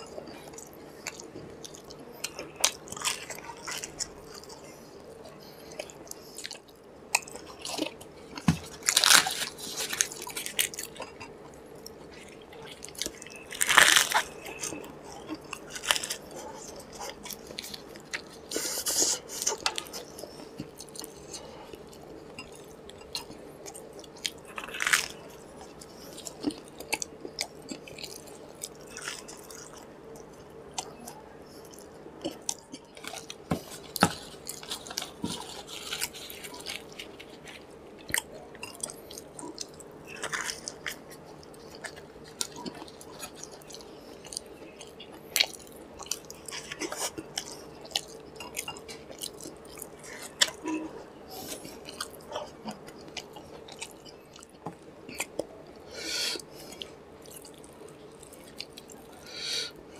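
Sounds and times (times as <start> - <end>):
faint steady hum: 0.0 - 59.9
man chewing food: 0.0 - 59.9
crisp crunches: 8.6 - 11.0, 12.8 - 16.3, 33.0 - 48.6.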